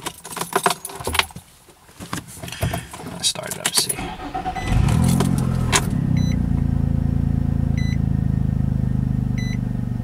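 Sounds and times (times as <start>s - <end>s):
car engine starting and idling: 2.7s - 10.0s
electronic chime beeps: 6.1s - 6.4s.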